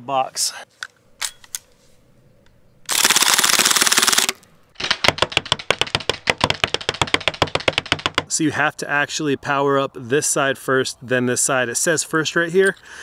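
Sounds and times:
bb pistol firing full auto: 2.9 - 6.6.

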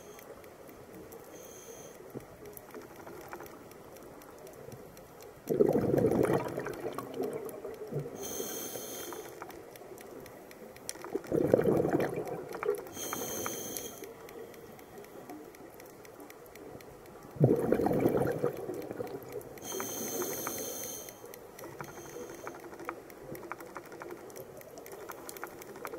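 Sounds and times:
exhaled bubbles rushing: 5.5 - 7.6, 11.2 - 12.8, 17.4 - 19.3
regulator inhalation hiss: 8.2 - 9.5, 12.9 - 14.2, 19.6 - 22.8.

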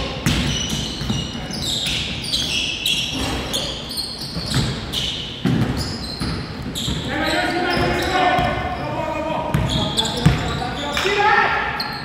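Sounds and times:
sneakers squeaking on floor: 0.0 - 12.0
basketball bouncing: 0.1 - 1.5, 4.4 - 7.1, 9.5 - 10.6.

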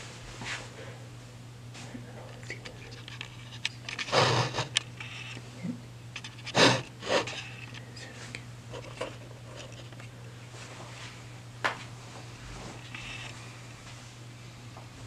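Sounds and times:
noisy scuffs: 0.0 - 0.8, 10.5 - 11.2, 11.8 - 14.2
low electrical hum: 0.0 - 15.0.

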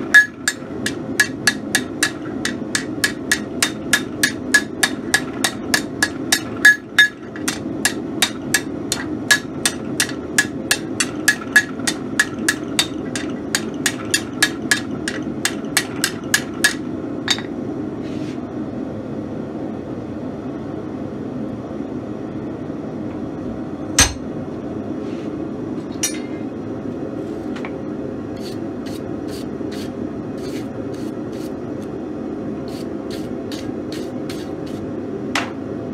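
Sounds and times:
hammer striking hot steel on anvil: 0.0 - 17.5, 24.0 - 24.3, 26.0 - 26.4.

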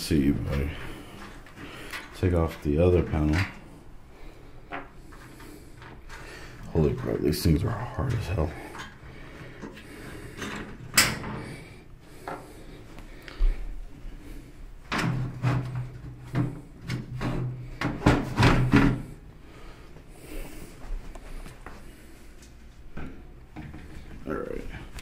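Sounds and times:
man talking: 0.0 - 1.0, 2.2 - 3.6, 6.7 - 8.8, 24.2 - 25.0.

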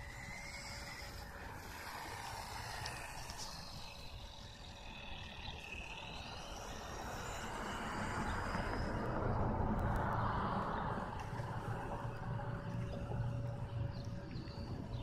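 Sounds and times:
car passing: 6.6 - 15.0.

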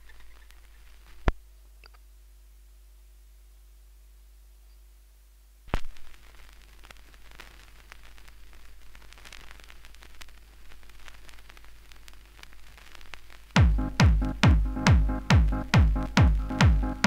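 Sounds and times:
vinyl crackle and pops: 0.0 - 2.1, 5.6 - 17.0
low mains hum: 0.0 - 17.0.

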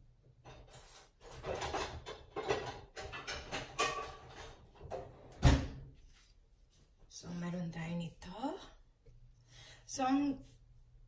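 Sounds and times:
kitchen items clattering and rustling: 0.3 - 6.0.

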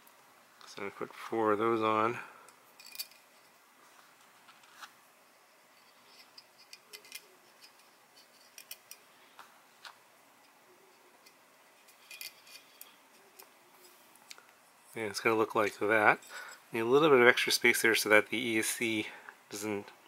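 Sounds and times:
small metal spacers clicking: 6.0 - 9.0, 11.2 - 13.5.

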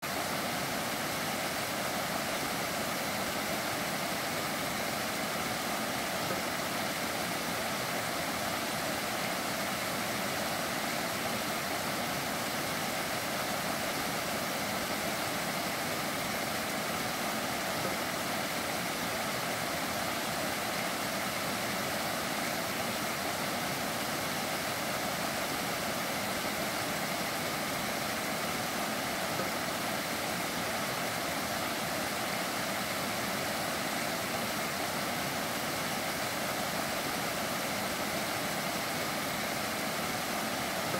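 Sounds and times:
stream rushing over cascades: 0.0 - 40.9.

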